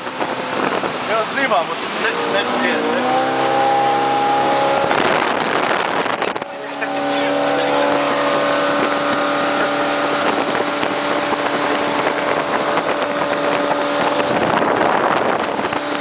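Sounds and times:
rushing wind: 0:00.0 - 0:16.0
speedboat engine running: 0:00.0 - 0:16.0
water spray rushing: 0:00.0 - 0:16.0.

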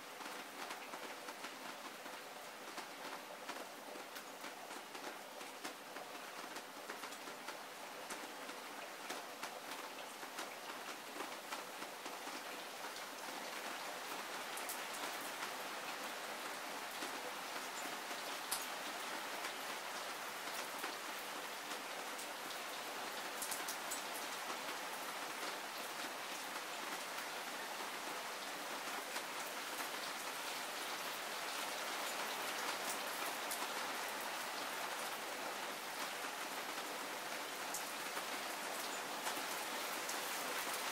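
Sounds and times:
heavy rain falling: 0:00.0 - 0:40.9.

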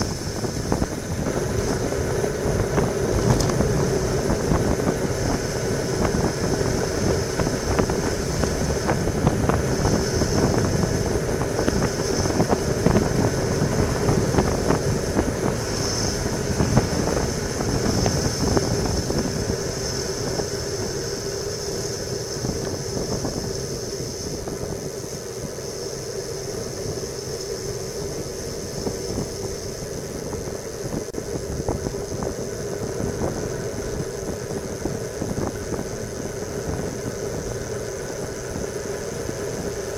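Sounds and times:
tyre and road rumble: 0:00.0 - 0:25.5
wind rushing over microphone: 0:00.0 - 0:39.9.

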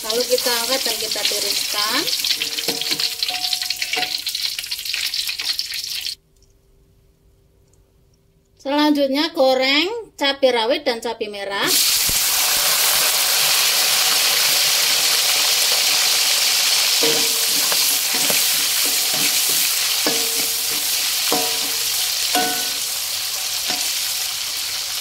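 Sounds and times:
chillies sizzling in hot oil: 0:00.0 - 0:06.2, 0:11.7 - 0:25.0
spatula knocking against a wok: 0:17.0 - 0:22.9, 0:23.7 - 0:24.0.

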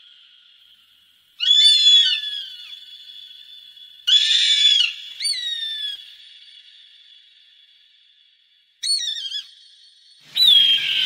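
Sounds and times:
osprey screeching calls: 0:01.4 - 0:06.3, 0:08.8 - 0:09.6, 0:10.2 - 0:11.0.

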